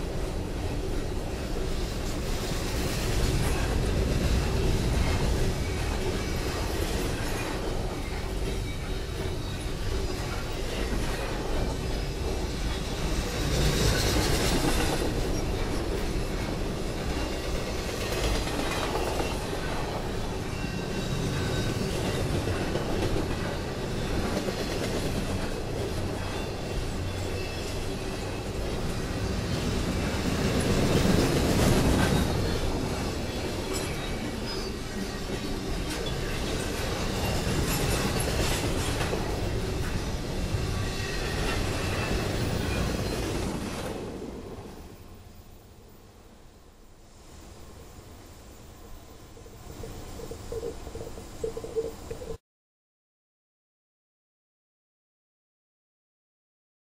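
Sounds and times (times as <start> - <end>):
train wheels rumbling on rails: 0.0 - 52.4.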